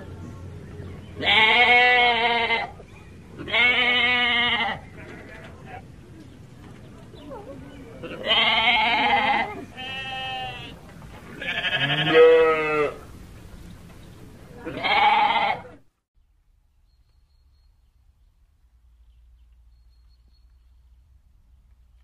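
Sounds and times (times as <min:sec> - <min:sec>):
goat kid bleating: 0:01.2 - 0:02.8, 0:03.4 - 0:05.9, 0:08.0 - 0:10.8, 0:11.4 - 0:13.0, 0:14.6 - 0:15.8.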